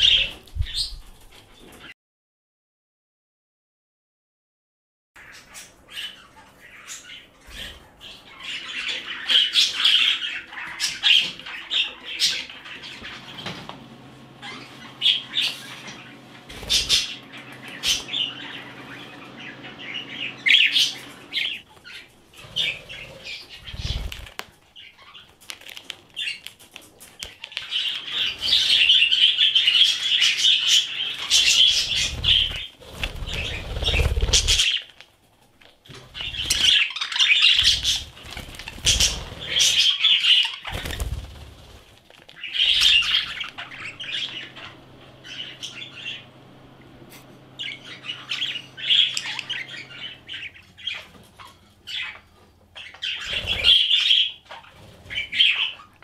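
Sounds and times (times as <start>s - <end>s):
budgerigars chirping: 5.2s - 13.6s, 14.2s - 24.2s, 27.2s - 34.8s, 35.9s - 41.5s, 42.4s - 46.7s, 47.3s - 56.0s
wings flapping: 15.4s - 18.3s, 20.8s - 24.6s, 31.3s - 35.0s, 35.9s - 36.9s, 37.6s - 44.0s, 53.2s - 54.0s.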